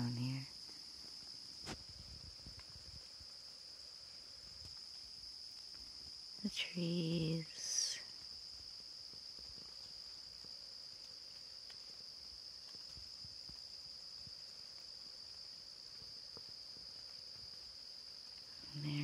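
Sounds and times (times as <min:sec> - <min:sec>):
high-pitched insect chorus: 0:00.0 - 0:19.0
raindrops ticking on leaves: 0:00.0 - 0:19.0.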